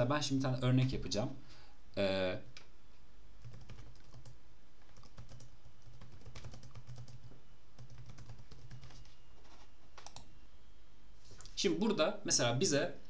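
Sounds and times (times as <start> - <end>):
low steady hum: 0.0 - 13.0
typing on a keyboard: 3.4 - 9.2, 10.0 - 10.3.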